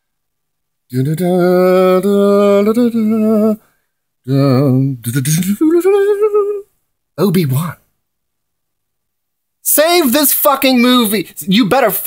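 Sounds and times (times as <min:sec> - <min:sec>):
man singing long wordless notes: 0:00.9 - 0:06.7.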